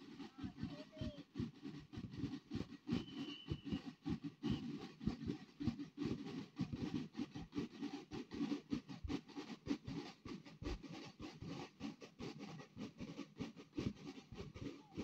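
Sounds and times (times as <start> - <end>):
marching drums beating: 0.0 - 7.6, 13.4 - 15.0.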